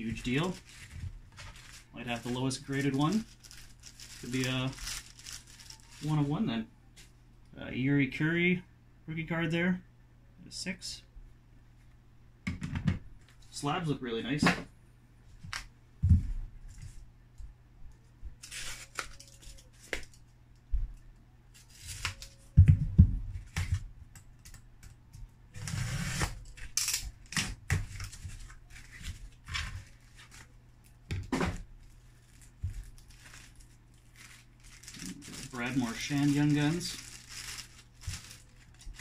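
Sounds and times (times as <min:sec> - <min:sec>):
plastic sleeves rustling: 0:00.0 - 0:07.1, 0:18.4 - 0:20.3, 0:21.5 - 0:22.6, 0:25.6 - 0:39.0.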